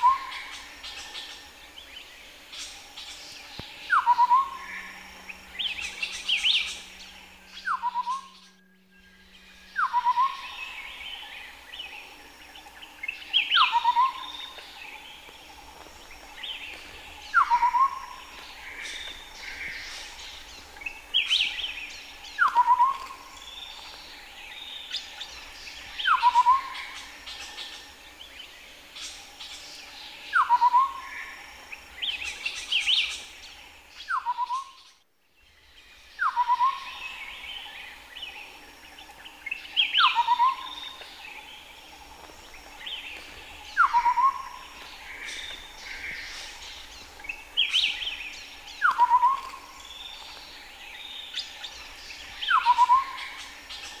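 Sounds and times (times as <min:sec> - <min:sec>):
birds chirping: 0:00.0 - 0:54.0
partridge calling: 0:02.6 - 0:11.6.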